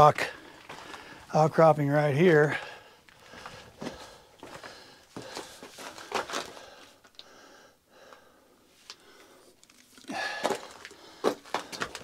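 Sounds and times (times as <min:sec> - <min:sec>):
scuffs on rocky ground: 0:00.0 - 0:01.3, 0:02.5 - 0:07.2, 0:10.1 - 0:12.0
person breathing close: 0:02.5 - 0:12.0.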